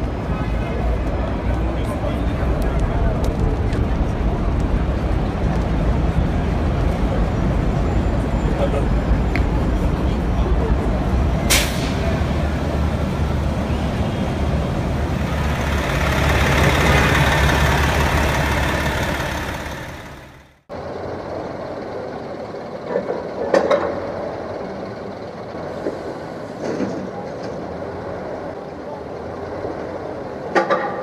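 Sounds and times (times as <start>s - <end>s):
heavy vehicle engine running low: 0.0s - 30.6s
city street traffic: 0.0s - 31.0s
brief sharp hiss: 11.5s - 12.1s.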